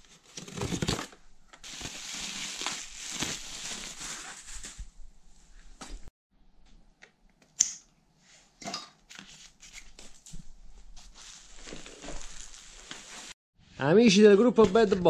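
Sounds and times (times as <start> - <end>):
plastic wrapping rustling: 0.2 - 6.1, 9.6 - 13.4.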